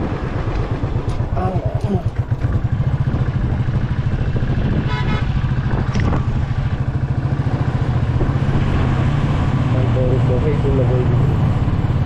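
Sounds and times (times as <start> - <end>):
motorcycle engine thumping: 0.0 - 7.4
vehicle horn: 4.8 - 5.4.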